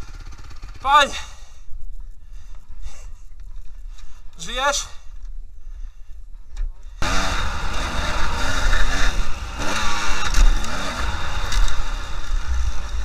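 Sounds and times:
dirt bike engine revving: 0.0 - 1.1, 7.0 - 13.0.

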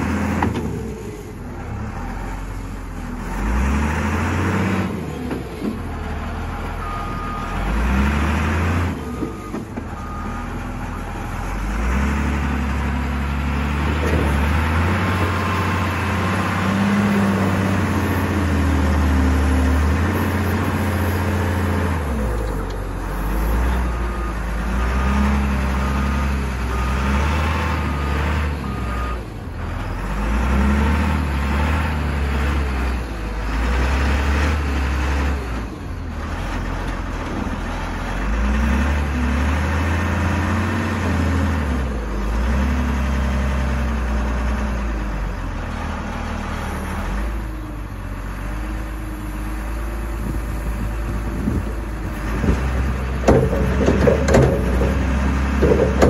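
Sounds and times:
wheel loader diesel engine revving: 0.0 - 56.0
reversing alarm beeps: 6.8 - 7.8, 9.1 - 10.6.

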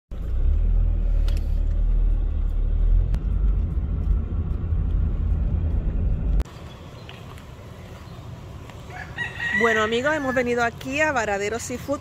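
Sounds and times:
car road rumble inside cabin: 0.1 - 6.5.

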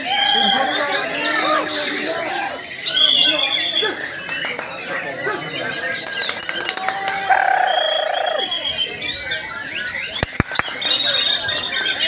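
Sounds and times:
birds singing in chorus: 0.0 - 12.0
sharp clicks: 10.2 - 10.9.

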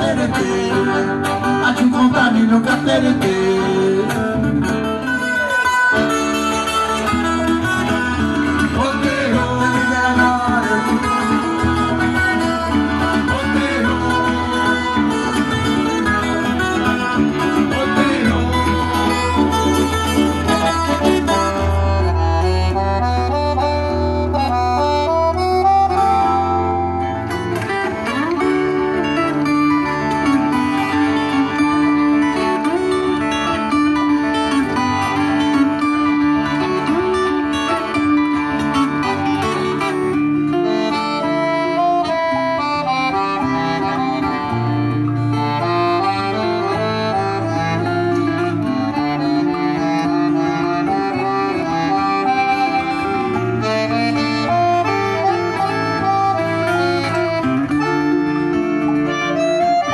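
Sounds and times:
accordion melody: 0.0 - 59.9
plucked acoustic string instrument: 0.0 - 59.9.

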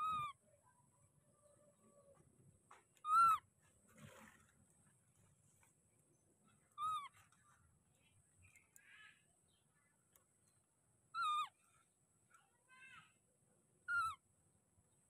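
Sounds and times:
baby monkey high cries: 0.0 - 0.4, 3.0 - 3.4, 6.8 - 7.2, 11.2 - 11.6, 13.9 - 14.2.

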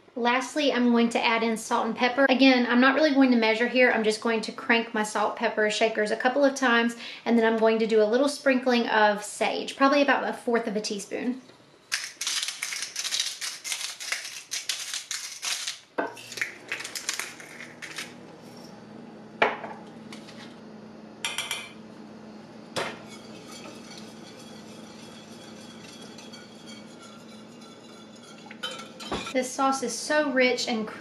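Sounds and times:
pepper grinders grinding: 11.8 - 18.8, 22.7 - 29.4
steady low hum: 17.1 - 29.4
utensil clinking on pot: 22.8 - 29.4.

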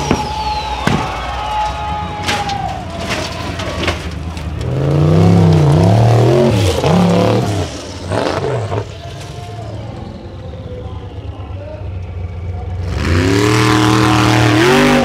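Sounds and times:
buggy engine revving: 3.6 - 10.3, 12.0 - 15.0.

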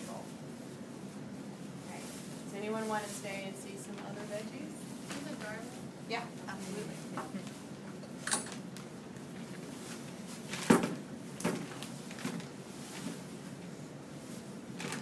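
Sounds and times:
plastic bag rustling: 8.5 - 15.0.

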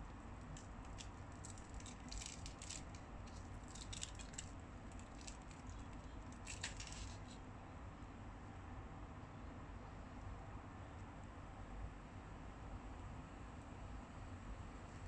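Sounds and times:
fried pancake tearing crackle: 0.5 - 7.4.

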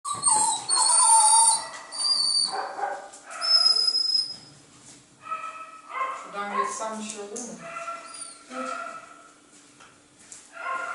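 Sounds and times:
dog whining: 0.1 - 4.5, 8.0 - 8.9.

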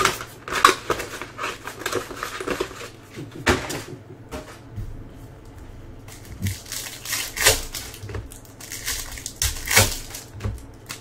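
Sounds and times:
foil wrapper crinkling and tearing: 0.0 - 3.0, 6.1 - 11.0.

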